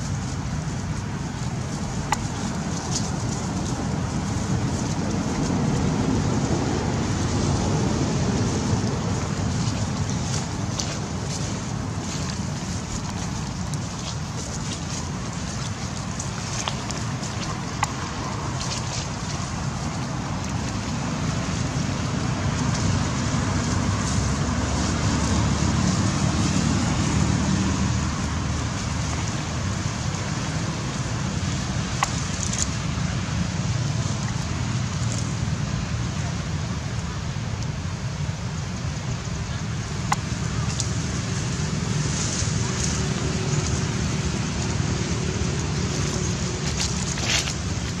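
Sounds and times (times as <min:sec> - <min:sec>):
low outdoor rumble and hiss: 0:00.0 - 0:48.0.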